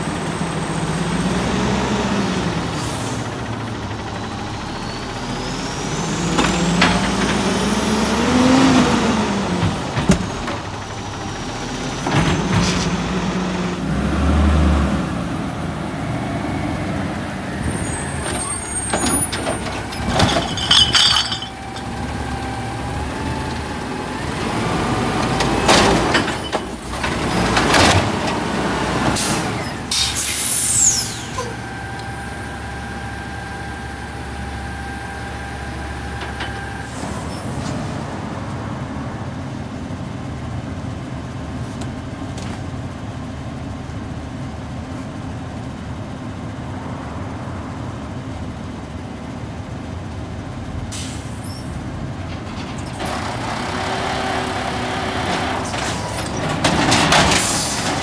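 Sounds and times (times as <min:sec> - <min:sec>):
truck engine running with whine: 0:00.0 - 0:58.0
cart clattering into hopper: 0:18.2 - 0:22.0, 0:55.3 - 0:58.0.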